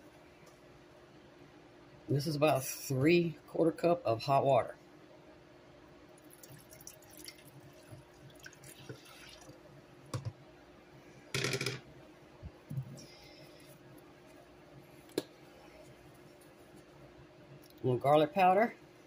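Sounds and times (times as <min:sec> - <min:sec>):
water pouring into a pot: 0:06.2 - 0:09.6.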